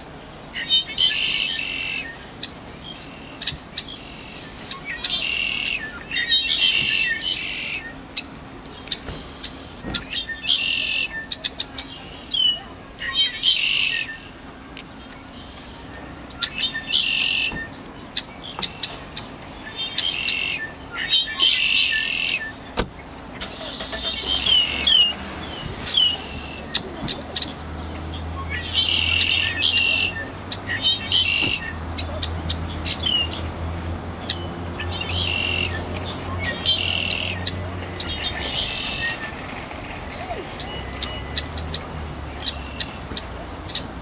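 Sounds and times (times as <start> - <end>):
blackbirds singing and calling: 0.0 - 44.0
low vehicle engine rumble: 0.0 - 44.0.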